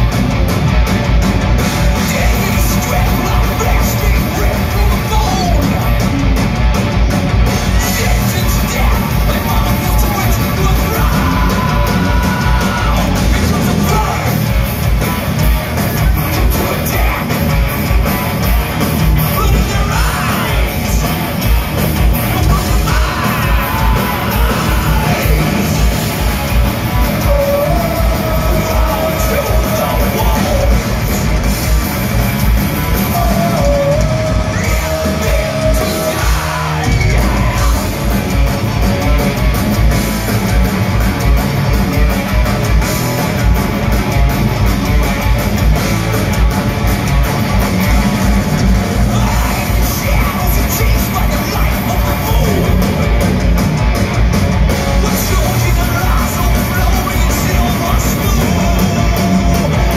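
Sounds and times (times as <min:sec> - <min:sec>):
distorted electric guitars: 0:00.0 - 0:59.9
drums: 0:00.0 - 0:59.9
shouted vocals: 0:07.6 - 0:15.3, 0:19.1 - 0:21.4, 0:22.1 - 0:31.0, 0:33.0 - 0:38.1.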